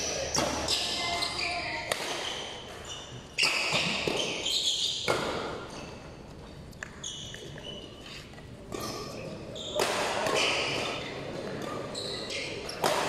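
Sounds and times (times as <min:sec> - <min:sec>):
racket striking shuttlecock: 0:01.8 - 0:02.5, 0:09.8 - 0:11.0, 0:12.7 - 0:13.0.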